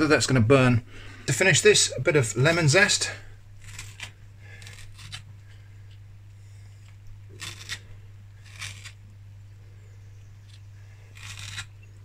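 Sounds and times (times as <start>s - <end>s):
steady low hum: 0.0s - 12.0s
zester scraping lemon skin: 3.6s - 5.3s, 6.8s - 9.1s, 10.4s - 12.0s.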